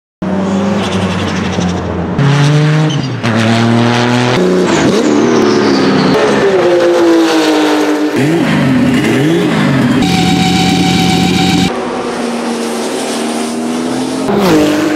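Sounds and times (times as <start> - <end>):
race car engines revving: 0.2 - 14.9
stationary car engine held steady: 8.2 - 14.6.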